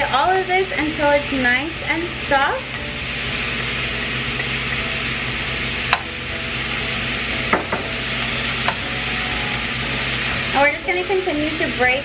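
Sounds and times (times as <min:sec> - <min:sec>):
sausage sizzling in a skillet: 0:00.0 - 0:12.0
spatula tapping pan: 0:05.9 - 0:06.2, 0:07.5 - 0:07.9, 0:08.6 - 0:08.8.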